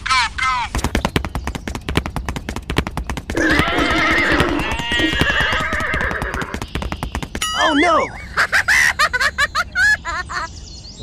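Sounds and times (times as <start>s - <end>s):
fast sharp clicks: 0.7s - 7.4s
horse whinnying: 3.3s - 6.7s.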